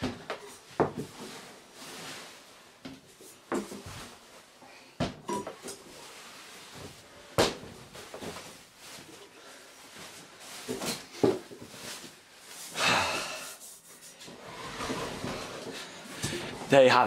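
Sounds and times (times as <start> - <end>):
rustling scrape: 1.2 - 4.5, 13.6 - 16.6.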